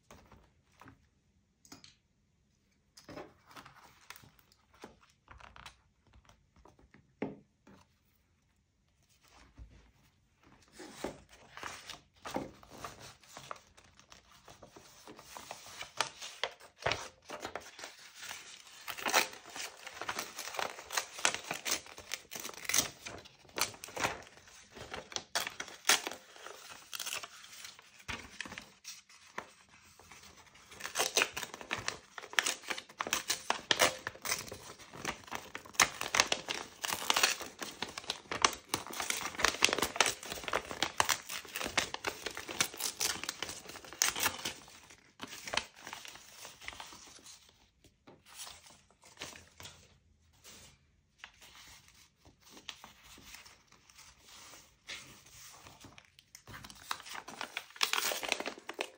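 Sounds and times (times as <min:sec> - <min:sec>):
paper crinkling and tearing: 0:10.7 - 0:47.5, 0:51.3 - 0:58.9.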